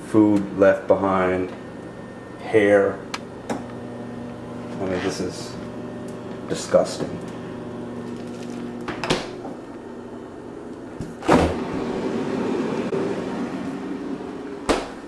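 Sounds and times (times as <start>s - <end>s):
steady hum: 0.0s - 15.0s
refrigerator door thump: 14.6s - 15.0s.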